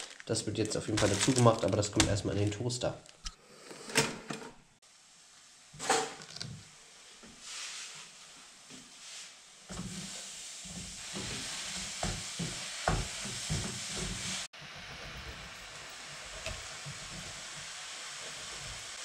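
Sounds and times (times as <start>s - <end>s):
mushrooms sizzling in frying pan: 6.5s - 19.0s.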